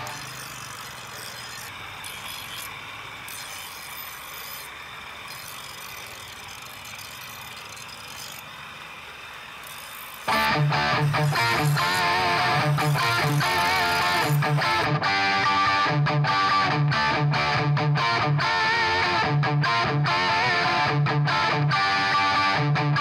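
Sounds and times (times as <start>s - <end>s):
knife on grinding wheel: 0.0s - 14.9s.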